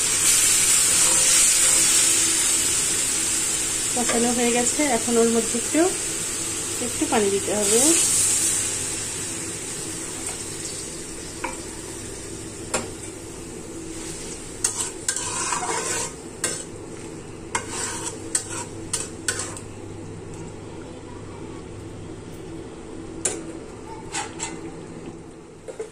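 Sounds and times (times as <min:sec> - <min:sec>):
water sizzling in hot pan: 0:00.0 - 0:19.6
metal spoon scraping pan: 0:14.6 - 0:16.7, 0:17.5 - 0:19.6.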